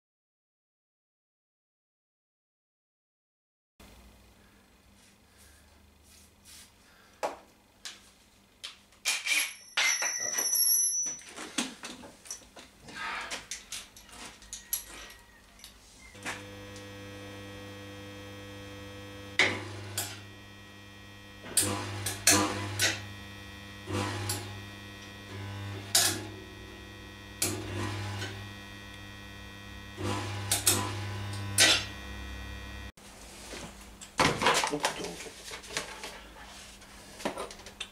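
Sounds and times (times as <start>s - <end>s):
welder mains hum: 15.4s - 33.0s
welding bursts: 16.2s - 32.9s.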